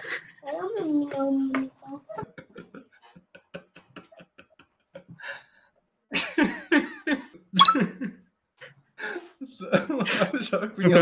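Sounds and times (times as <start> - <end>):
man laughing: 2.2 - 5.3, 6.1 - 8.2, 9.0 - 10.7.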